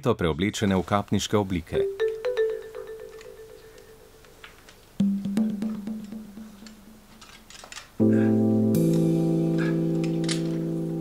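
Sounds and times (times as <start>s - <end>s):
held low music notes: 8.0s - 11.0s.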